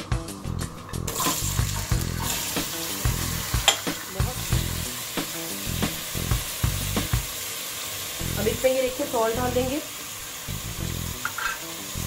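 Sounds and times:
background music with beat: 0.0 - 7.4
potatoes sizzling in oil: 0.9 - 12.0
metal spatula stirring in pot: 11.2 - 11.7.

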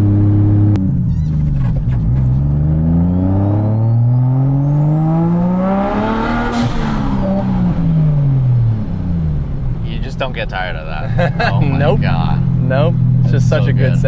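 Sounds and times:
car engine accelerating: 0.0 - 14.0.

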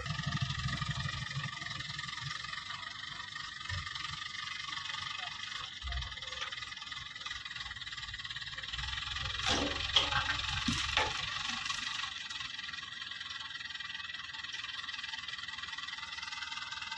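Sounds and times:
crane diesel engine running: 0.0 - 16.9
logs knocking and clattering: 9.4 - 11.7.

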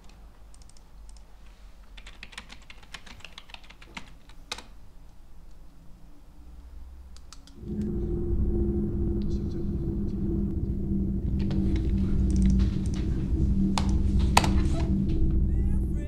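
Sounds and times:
typing on a keyboard: 0.0 - 4.8
faint steady hum: 0.0 - 16.0
low rumble: 7.5 - 16.0.

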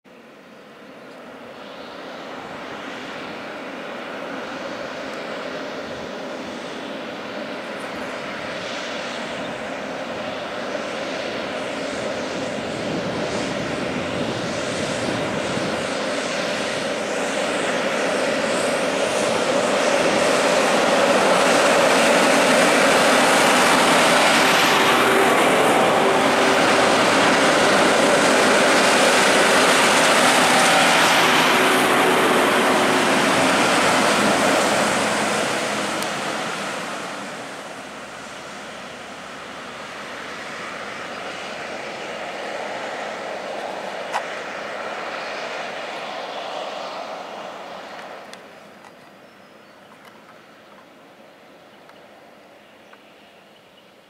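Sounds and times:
trucks driving past: 17.7 - 48.3.

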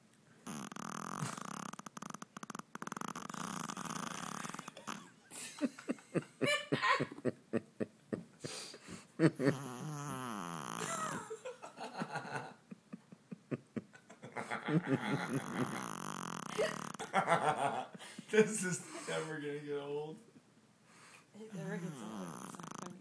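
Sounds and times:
dog snoring: 0.4 - 5.1, 9.3 - 11.2, 15.0 - 17.0, 21.5 - 23.0
person laughing hard: 4.7 - 8.3, 9.0 - 9.7, 10.8 - 15.8, 16.5 - 18.0.

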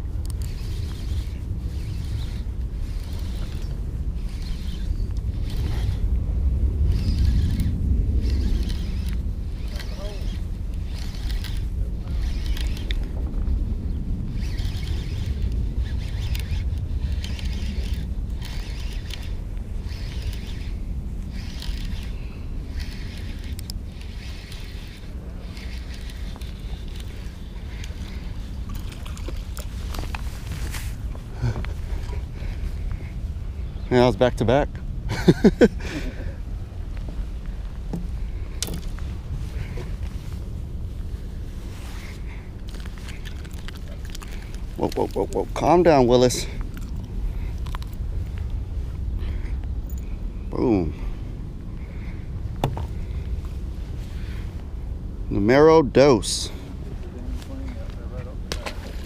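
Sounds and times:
fishing reel gears whirring: 0.0 - 6.1, 6.8 - 13.2, 13.8 - 33.1, 38.2 - 40.5, 41.2 - 48.2
wind on microphone: 0.0 - 55.7.

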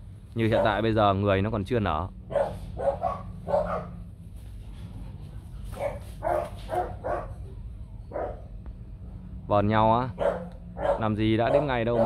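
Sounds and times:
dogs barking and yipping: 0.5 - 0.8, 2.3 - 4.1, 5.6 - 8.6, 10.1 - 12.0.

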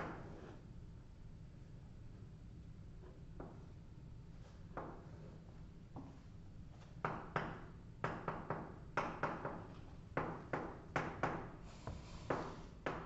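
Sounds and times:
chalk tapping and scraping: 11.0 - 13.0.

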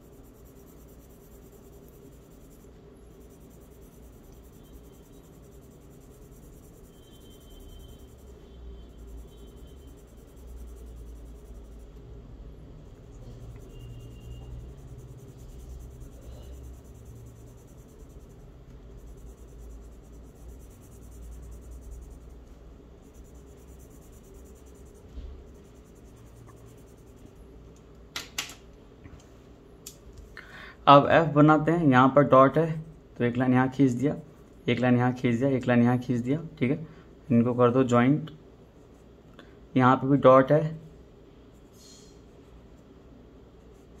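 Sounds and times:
charcoal scratching on paper: 0.0 - 27.6, 43.6 - 44.0.

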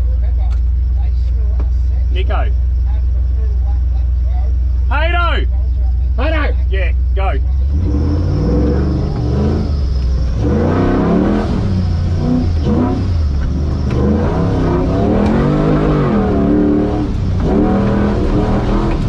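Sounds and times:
truck engine revving hard: 7.2 - 19.0.

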